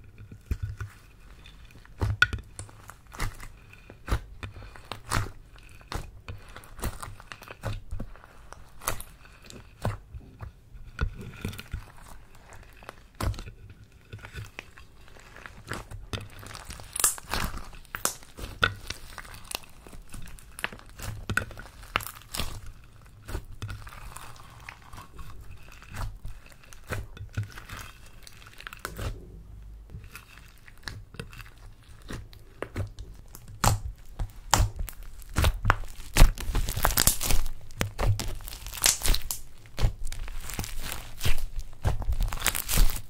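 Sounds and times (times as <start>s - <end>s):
hands squishing slime: 0.0s - 43.0s
sticky pops and crackles: 15.5s - 29.2s, 29.9s - 43.0s.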